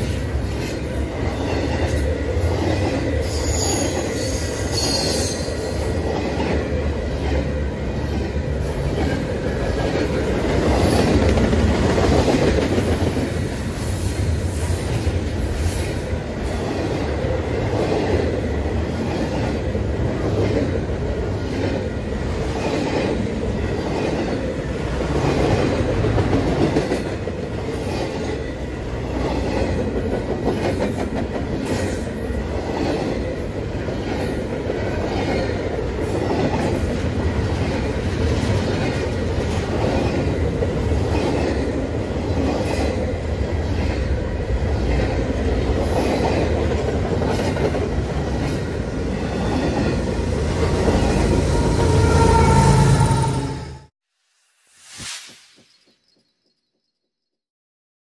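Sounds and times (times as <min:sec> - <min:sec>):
steel wheels rumbling on rails: 0:00.0 - 0:53.9.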